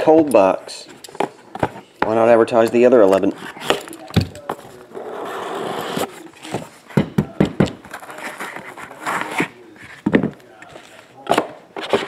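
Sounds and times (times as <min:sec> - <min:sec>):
cardboard lid scraping off: 0:04.8 - 0:06.8.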